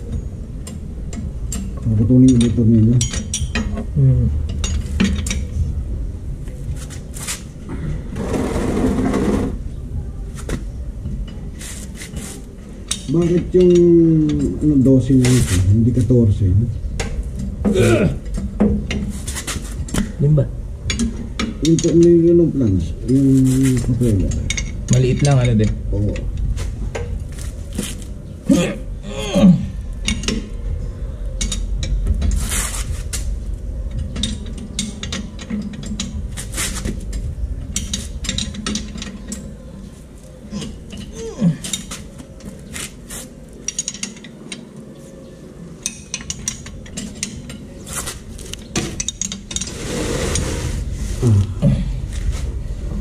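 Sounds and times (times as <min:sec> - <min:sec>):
metal tools clinking: 0:00.1 - 0:03.8, 0:23.0 - 0:27.1, 0:33.9 - 0:39.9, 0:40.5 - 0:44.8, 0:45.8 - 0:50.4.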